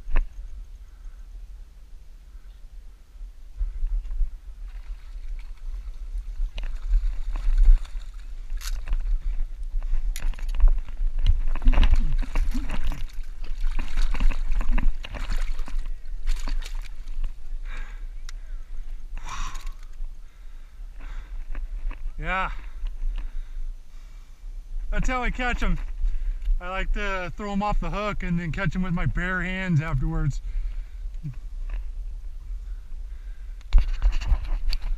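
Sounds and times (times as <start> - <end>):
steady low rumble: 0.0 - 34.9
knocks and scrapes on rocks: 6.4 - 17.4, 33.7 - 34.9.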